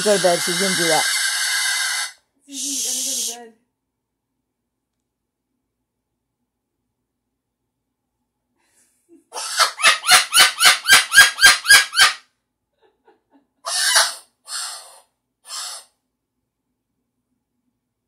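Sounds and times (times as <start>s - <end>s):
cockatoo squawking: 0.0s - 2.1s, 9.3s - 12.2s, 13.7s - 16.0s.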